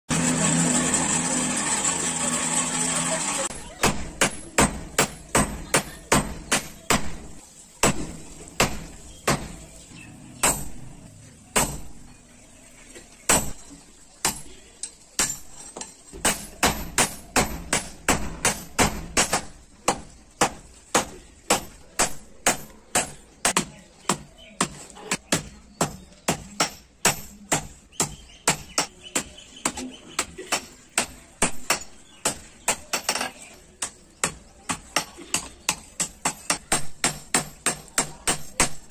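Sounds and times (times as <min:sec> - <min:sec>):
hammer striking on anvil: 0:10.4 - 0:10.8.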